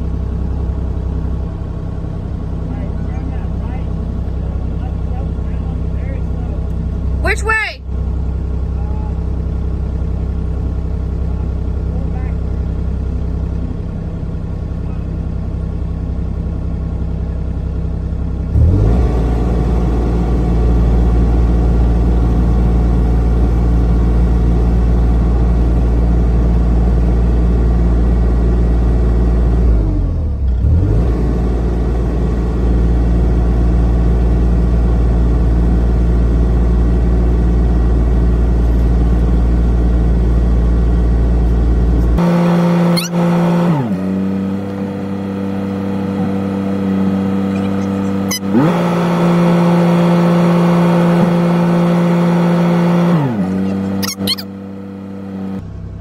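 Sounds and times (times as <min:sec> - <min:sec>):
excavator diesel engine revving: 0:18.2 - 0:55.7.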